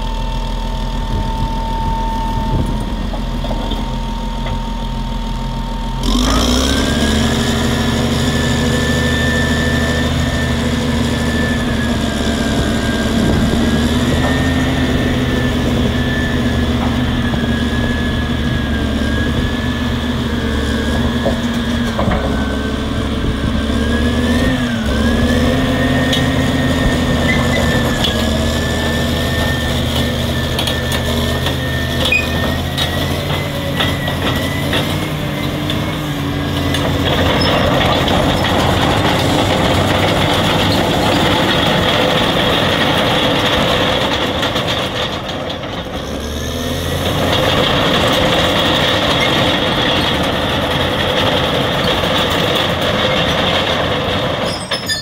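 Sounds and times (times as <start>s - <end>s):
high whine: 0.0s - 20.0s
bulldozer diesel engine running: 0.0s - 55.0s.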